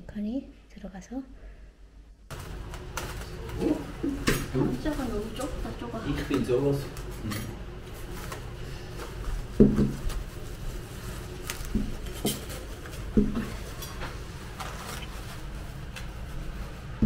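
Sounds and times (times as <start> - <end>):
crockery knocking on table: 9.6 - 10.0.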